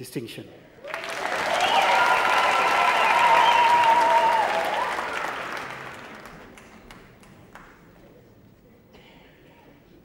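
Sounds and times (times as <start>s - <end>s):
high-pitched cheer: 0.8s - 6.2s
audience applauding: 0.8s - 7.9s.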